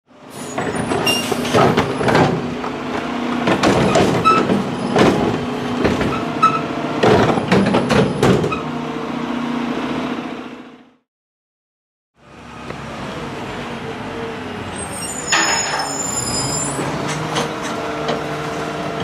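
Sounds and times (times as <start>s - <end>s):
sharp metallic clanks and bangs: 15.2s - 17.8s.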